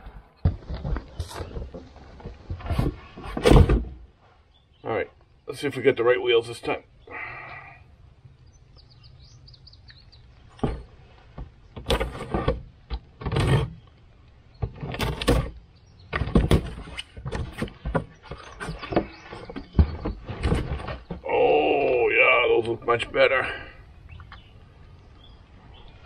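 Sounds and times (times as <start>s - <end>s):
faint bird chirps: 6.7s - 11.0s, 18.1s - 26.0s.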